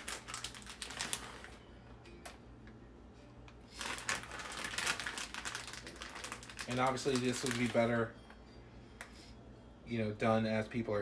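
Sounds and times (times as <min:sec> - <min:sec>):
plastic bag crinkling: 0:00.0 - 0:01.6, 0:03.7 - 0:08.0.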